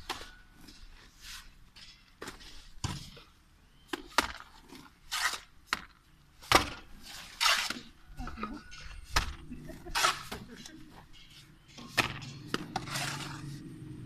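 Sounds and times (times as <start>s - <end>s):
shovel scraping mortar in wheelbarrow: 4.4s - 5.6s, 6.9s - 8.0s, 9.1s - 10.7s, 11.3s - 13.6s.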